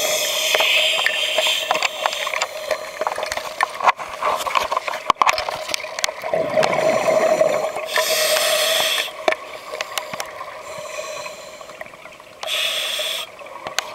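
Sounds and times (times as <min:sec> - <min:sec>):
faint steady hum: 0:00.0 - 0:13.9
exhaled bubbles rushing underwater: 0:06.0 - 0:08.0
regulator hissing inhalation: 0:07.4 - 0:09.2, 0:12.4 - 0:13.3.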